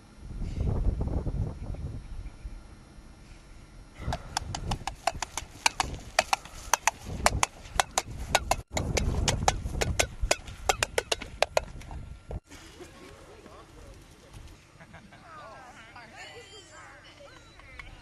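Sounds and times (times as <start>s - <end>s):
hoofbeats clip-clop: 4.1s - 11.9s.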